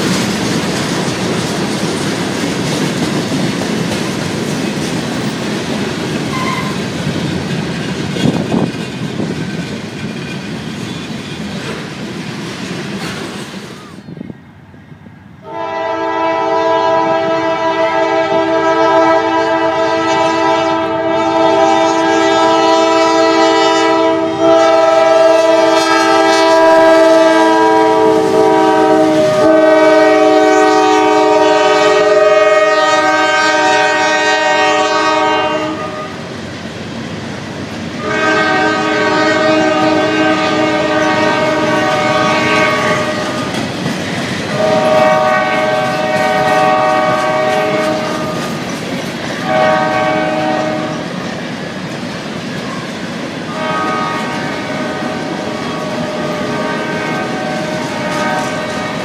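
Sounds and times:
wheels clacking over rail joints: 0.0s - 13.8s, 38.6s - 50.0s
locomotive air horn blasts: 6.3s - 6.8s, 15.4s - 36.2s, 38.0s - 43.5s, 44.5s - 48.4s, 49.4s - 51.1s, 53.5s - 59.0s.

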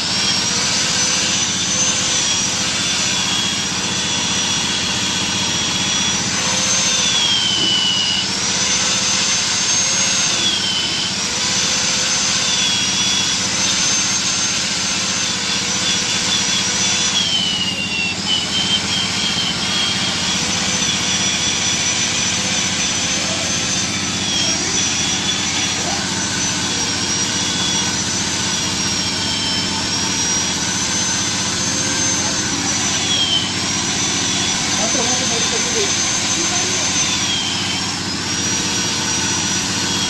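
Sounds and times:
electric drill whining: 0.0s - 40.0s.

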